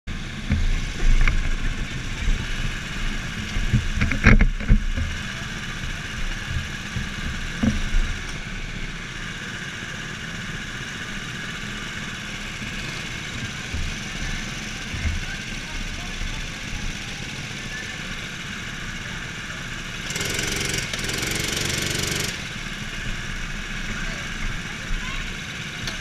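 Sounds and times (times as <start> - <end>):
go-kart engines idling: 0.1 - 26.0
sharp knocks and thumps: 3.5 - 5.2, 6.4 - 8.4.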